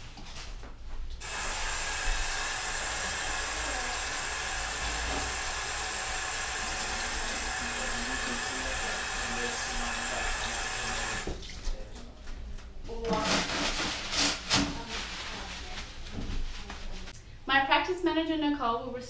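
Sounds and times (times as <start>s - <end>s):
tap water running into sink: 1.2s - 11.6s
rustling and scraping: 11.5s - 17.2s.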